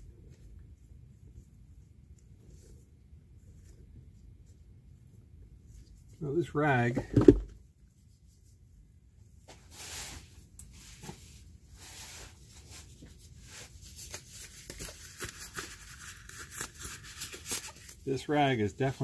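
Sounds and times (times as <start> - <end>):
cloth rag rustling: 9.4 - 16.0.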